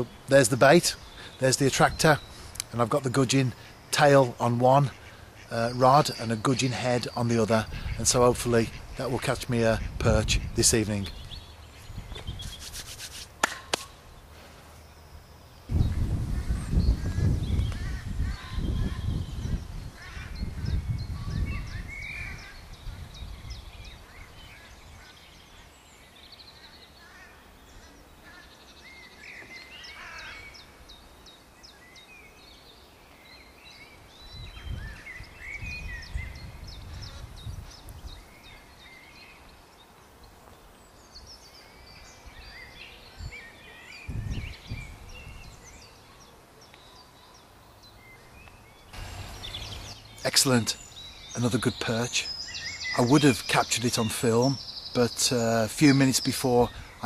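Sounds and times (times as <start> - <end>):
songbirds singing and chirping: 0.0 - 57.0
low rumbles on microphone: 15.7 - 22.0.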